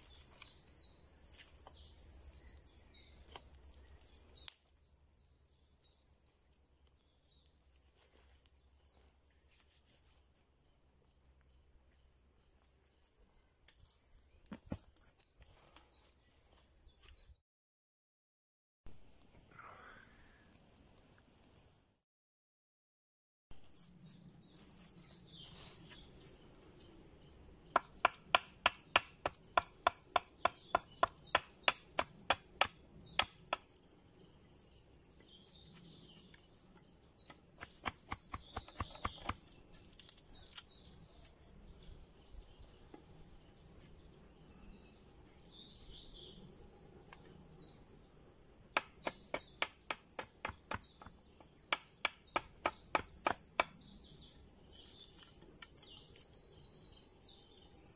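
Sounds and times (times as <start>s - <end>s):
birds chirping: 0.0s - 9.5s, 23.7s - 57.9s
hatchet chopping wood: 27.7s - 33.8s, 37.3s - 39.5s, 48.7s - 53.8s.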